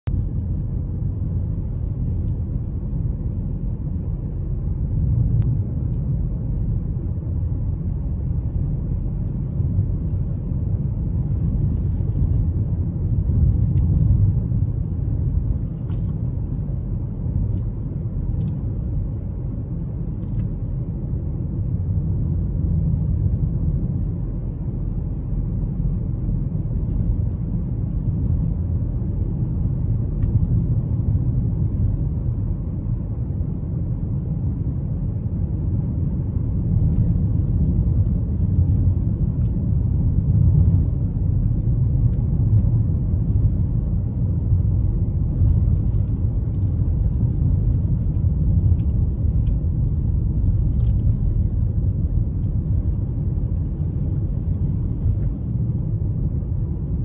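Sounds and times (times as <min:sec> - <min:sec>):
tyre and road noise on snow: 0:00.0 - 0:57.0.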